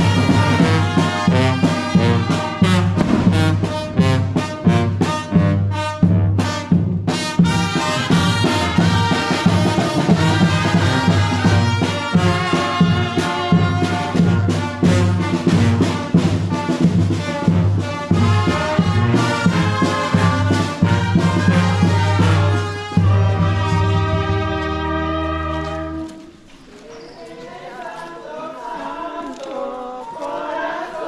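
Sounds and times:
brass band playing: 0.0 - 26.3.

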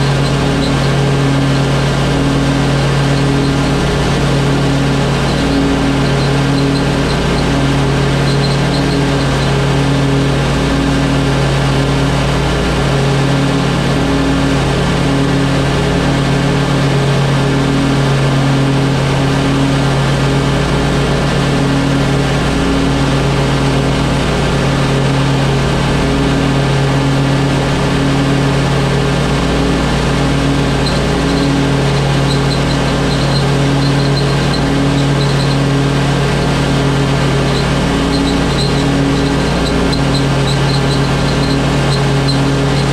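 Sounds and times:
blades cutting grass: 0.0 - 17.7, 20.6 - 42.9
lawn mower engine running: 0.0 - 42.9
faint high chirps: 5.1 - 9.6, 30.8 - 35.6, 37.5 - 42.9.

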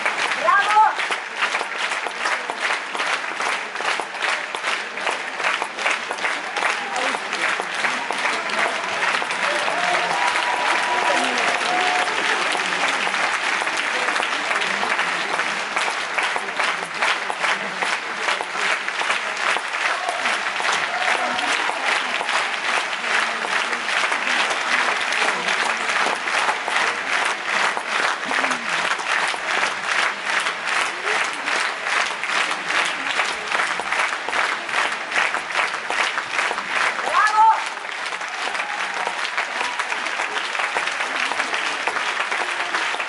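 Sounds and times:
audience clapping in unison: 0.0 - 43.0.

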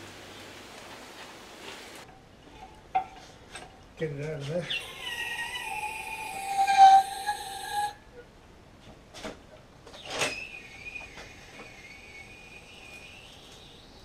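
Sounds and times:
high-pitched metallic squeal: 4.7 - 8.3, 10.0 - 14.0.

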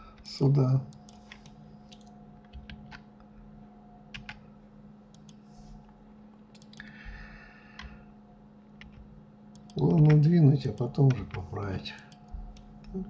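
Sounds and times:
faint steady hum: 0.0 - 13.0
mouse and keyboard clicks: 6.5 - 6.9.

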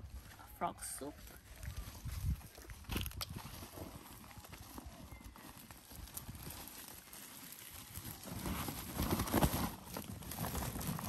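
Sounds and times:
plastic sack rustling and knocking: 2.2 - 11.0.

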